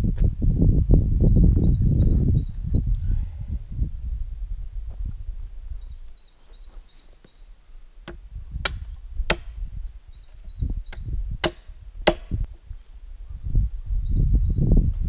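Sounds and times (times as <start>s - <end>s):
hatchet chopping log: 8.1s - 9.6s, 10.9s - 12.5s.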